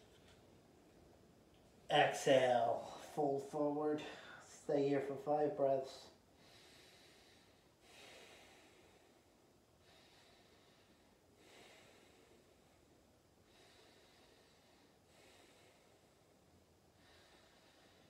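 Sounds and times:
slow breathing: 4.0s - 4.6s, 6.1s - 18.0s.

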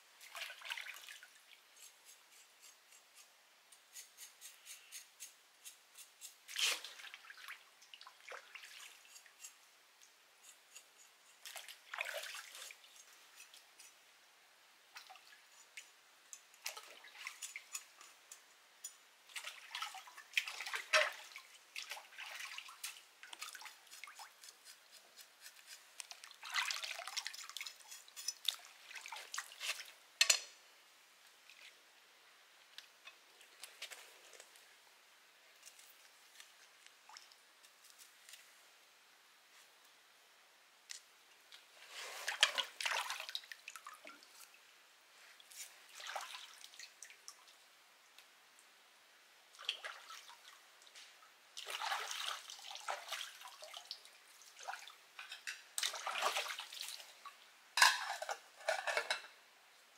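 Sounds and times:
stream water splashing and dripping: 0.2s - 1.9s, 6.5s - 10.2s, 11.4s - 13.9s, 14.9s - 30.4s, 35.6s - 37.8s, 40.9s - 48.7s, 49.5s - 59.1s
quick knife scrapes: 3.9s - 6.9s.

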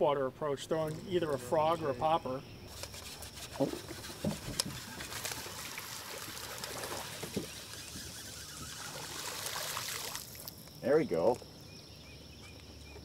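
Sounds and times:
water splashing and trickling: 0.7s - 10.8s.

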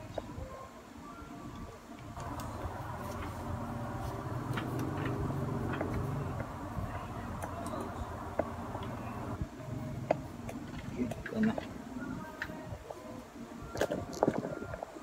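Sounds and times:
laptop fan whirring: 0.0s - 15.0s.

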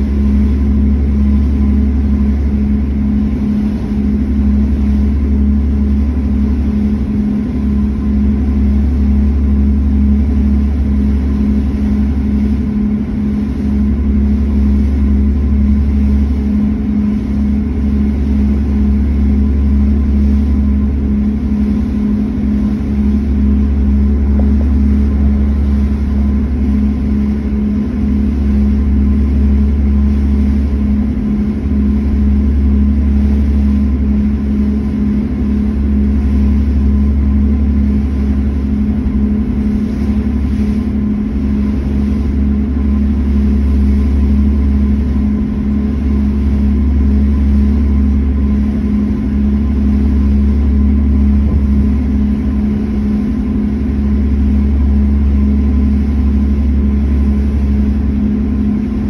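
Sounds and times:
ferry engines droning: 17.2s - 32.5s.

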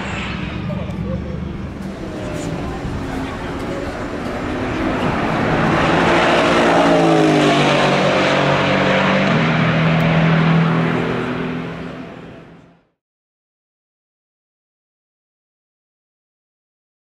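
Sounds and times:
race car engine passing: 0.0s - 12.8s.

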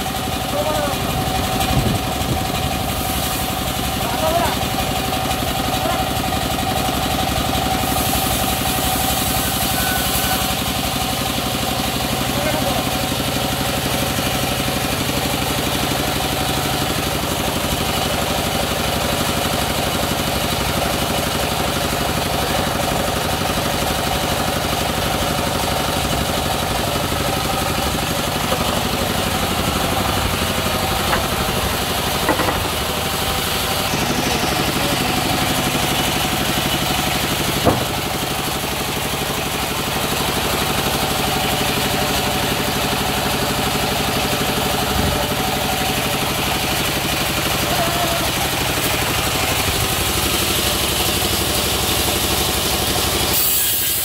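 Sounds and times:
sawmill machinery drone: 0.0s - 54.0s
short knocks: 37.6s - 38.1s.

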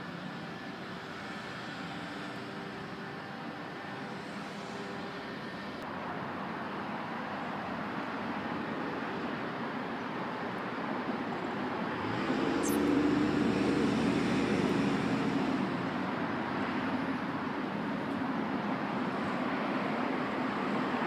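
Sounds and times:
background traffic hum: 0.0s - 21.0s
vehicle passing: 11.9s - 16.6s.

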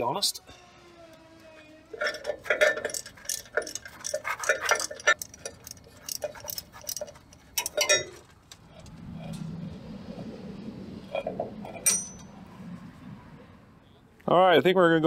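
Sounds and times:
metallic clicks of hand tools: 2.0s - 8.6s.

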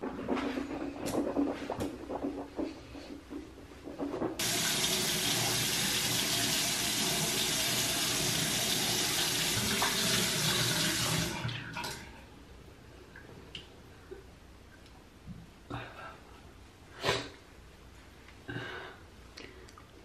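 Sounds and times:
tap running into sink: 9.3s - 11.3s.

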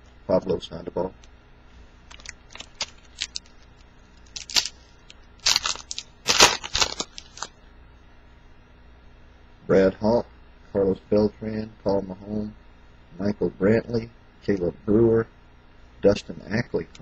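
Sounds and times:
plastic wrapper tearing and crinkling: 2.1s - 7.5s.

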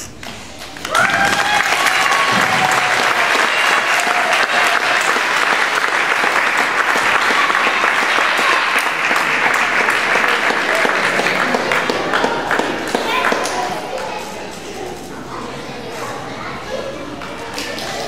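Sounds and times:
audience applauding: 0.0s - 14.3s.

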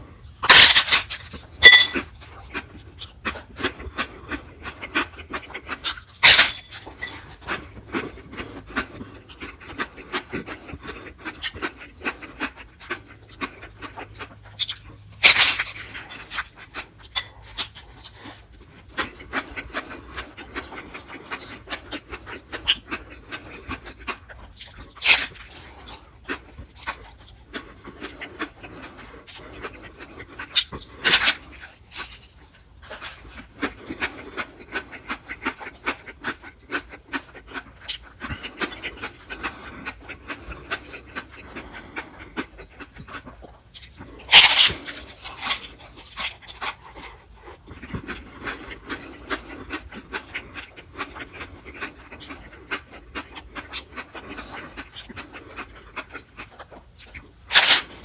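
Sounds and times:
wet chewing with mouth clicks: 0.0s - 58.0s
sharp biting sound: 11.3s - 16.9s, 42.8s - 47.1s, 56.4s - 58.0s.

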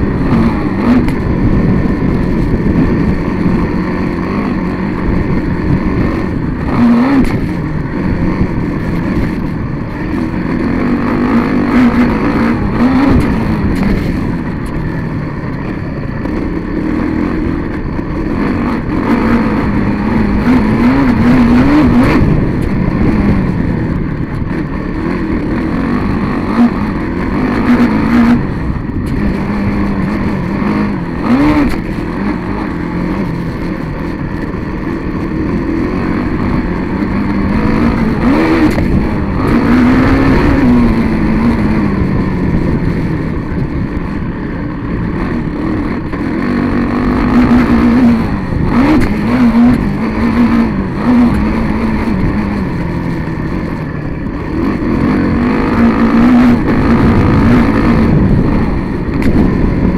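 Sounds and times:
vehicle engine revving: 0.0s - 59.9s.

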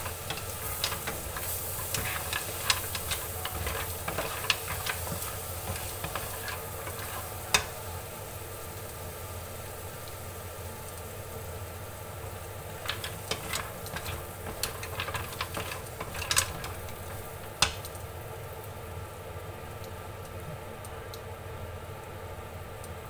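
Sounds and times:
mussel shells clattering in pan: 0.0s - 7.9s, 12.7s - 17.9s
steady low hum: 0.0s - 23.0s.

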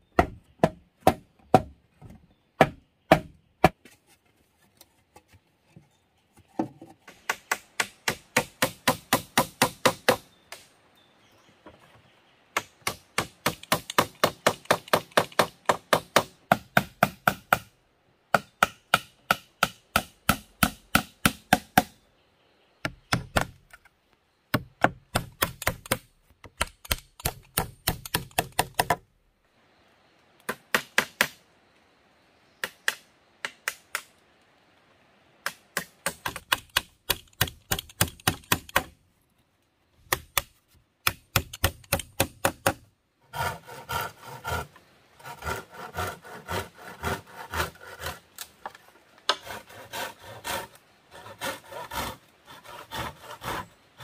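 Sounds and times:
hammer striking nails: 40.1s - 42.8s.

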